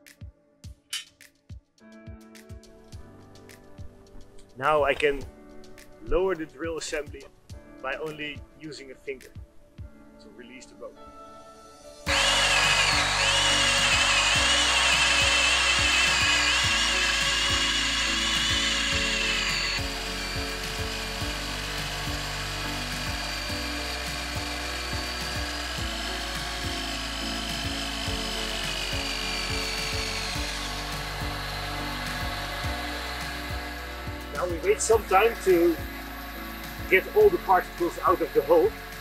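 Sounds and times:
background music: 0.0 - 39.0
power drill motor whine: 12.1 - 39.0.

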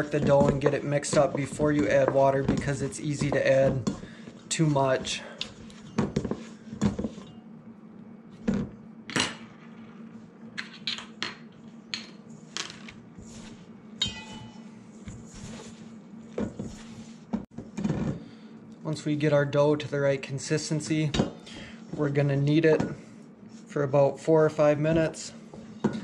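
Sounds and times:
dough kneaded by hand: 0.0 - 7.2, 13.0 - 18.2
fork clinking against metal bowl: 14.0 - 14.7.

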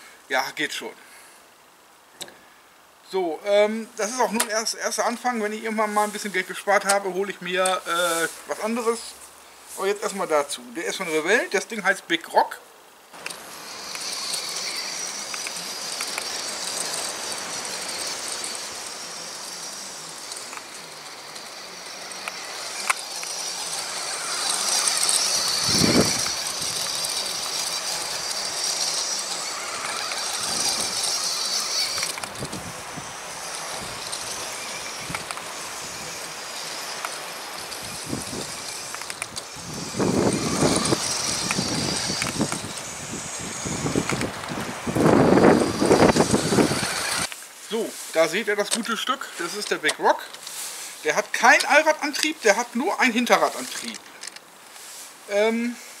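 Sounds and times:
electric motor whining: 13.2 - 47.4.

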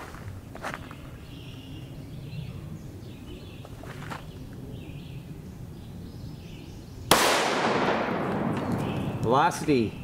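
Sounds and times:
birds chirping: 0.3 - 7.4, 8.1 - 10.0.

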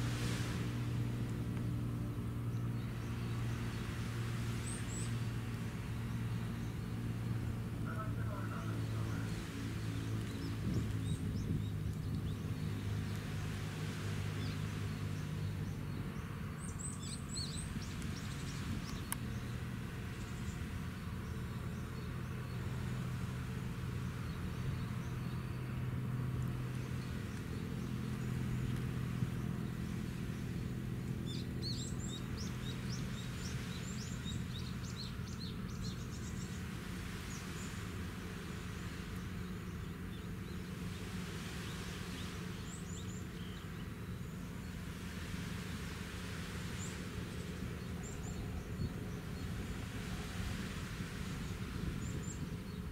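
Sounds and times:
low machinery drone: 0.0 - 52.9
small birds chirping: 0.0 - 52.9.

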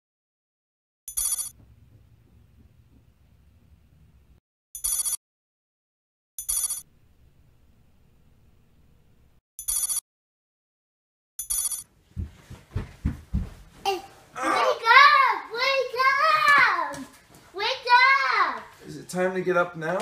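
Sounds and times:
old-style telephone bell ringing: 1.1 - 1.5, 4.8 - 5.2, 9.6 - 10.0, 11.4 - 11.8.

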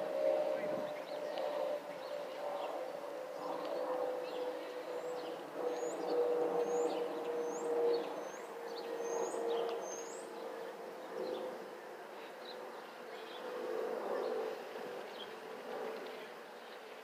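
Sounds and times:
steady whistle from aircraft: 0.0 - 12.0
jet airliner passing overhead: 0.0 - 17.0
birds chirping: 0.2 - 17.0.

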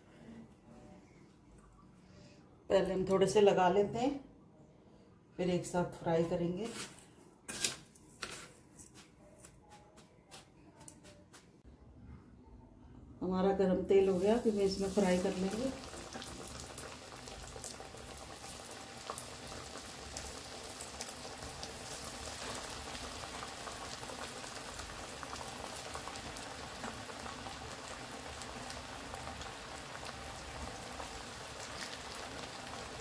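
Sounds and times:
chicken deep-frying in oil: 13.9 - 33.0.

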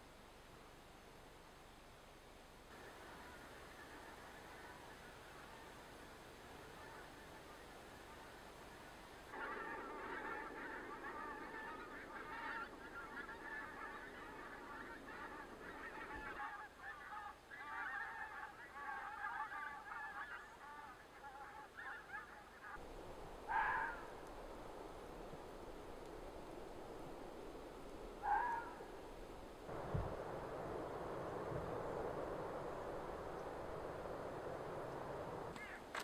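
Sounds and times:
geese honking: 6.7 - 8.2, 9.3 - 22.8, 23.5 - 24.2, 28.2 - 28.8.

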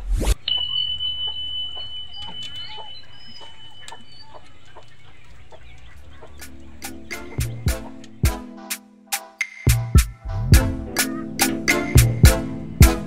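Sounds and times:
chickens clucking: 0.3 - 8.7, 10.6 - 13.0
high ringing tone: 0.4 - 4.6
wood fire crackling: 0.6 - 8.5.

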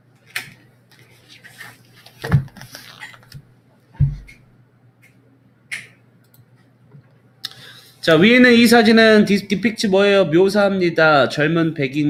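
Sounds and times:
dull thumps: 4.0 - 4.4.

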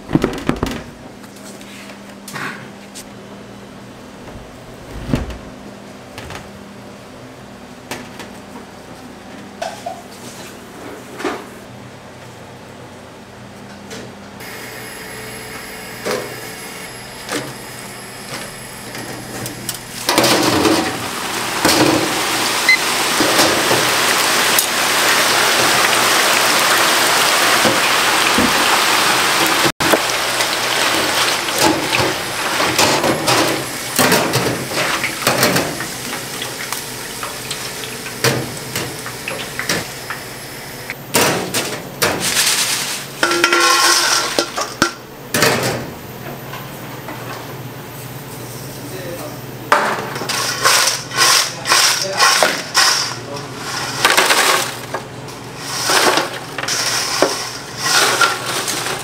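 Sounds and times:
oil sizzling in deep fryer: 14.4 - 41.0, 55.4 - 59.0
fry basket and tongs clanking: 18.3 - 28.8, 29.5 - 40.2, 41.1 - 45.9, 55.6 - 59.0.

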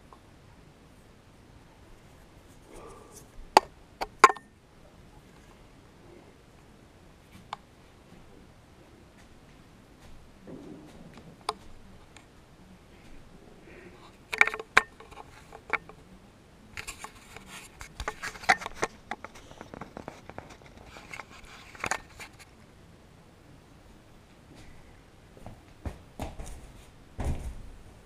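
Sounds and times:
hand handling a camera: 16.8 - 22.5.

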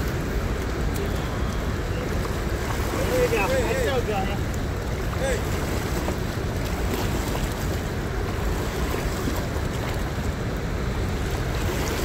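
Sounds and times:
waves washing against rocks: 0.0 - 12.0.

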